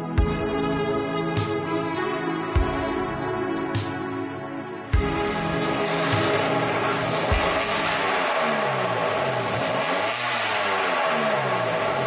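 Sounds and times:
car engine exhaust: 0:05.0 - 0:12.0.

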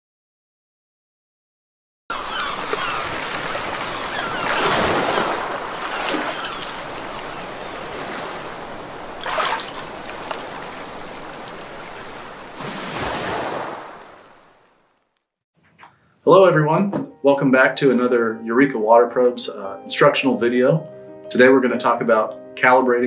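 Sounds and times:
rushing surf water: 0:02.1 - 0:14.8.

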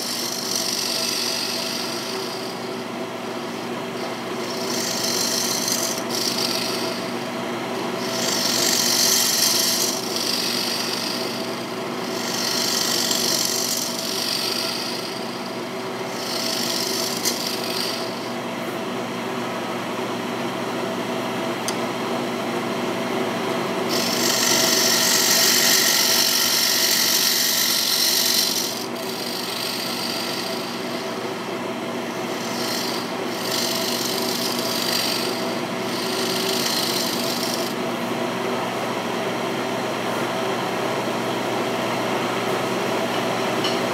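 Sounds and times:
scraper cutting spinning wood: 0:00.0 - 0:18.4, 0:23.8 - 0:38.0
lathe motor hum: 0:00.0 - 0:43.9.

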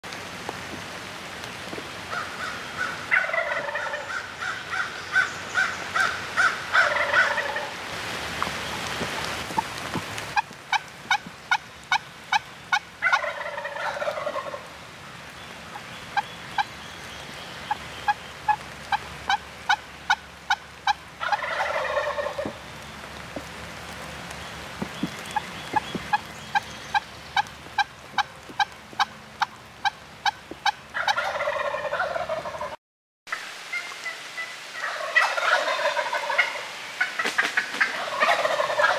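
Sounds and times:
turkey gobbling: 0:02.1 - 0:04.9, 0:06.0 - 0:07.7, 0:10.4 - 0:14.7, 0:17.7 - 0:22.6, 0:25.3 - 0:32.8, 0:33.7 - 0:38.9.

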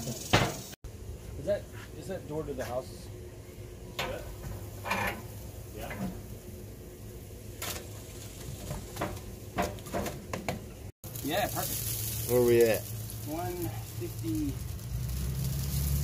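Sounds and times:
log knocking against steel firebox: 0:08.5 - 0:10.7.

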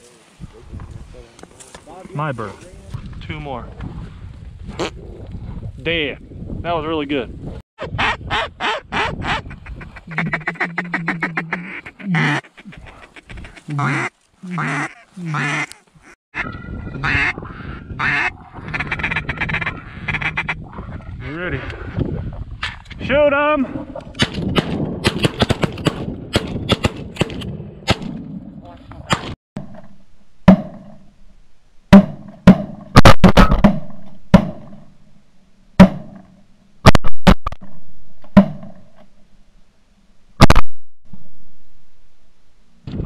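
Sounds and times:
duck call feed-call notes: 0:08.0 - 0:17.4, 0:18.0 - 0:20.6
duck call quacks: 0:08.0 - 0:17.4, 0:18.0 - 0:20.6
shotgun blasts with echo: 0:24.2 - 0:28.2.

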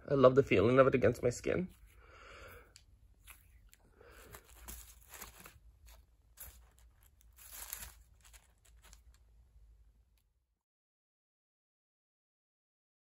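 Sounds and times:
faint crinkling and rustling: 0:01.6 - 0:09.4.

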